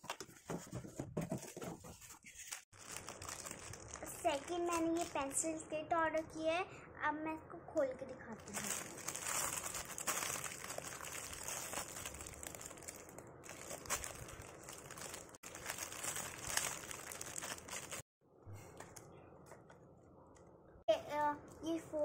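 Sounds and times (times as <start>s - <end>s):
plastic bag crinkling: 2.3s - 5.4s, 8.4s - 18.1s.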